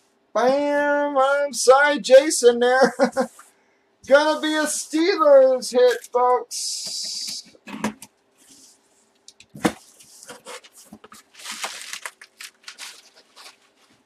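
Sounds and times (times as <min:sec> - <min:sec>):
faint steady hum: 0:00.0 - 0:14.0
cardboard box being opened: 0:09.6 - 0:13.7.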